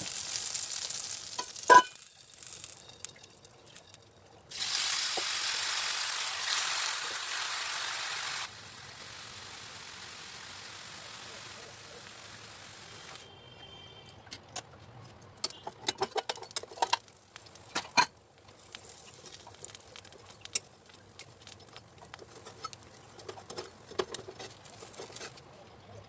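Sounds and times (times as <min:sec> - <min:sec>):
steady hiss: 0:00.0 - 0:03.8, 0:04.5 - 0:13.2
metal cookware clinking and scraping: 0:01.4 - 0:02.1, 0:15.2 - 0:17.1, 0:17.7 - 0:18.2, 0:20.3 - 0:25.4.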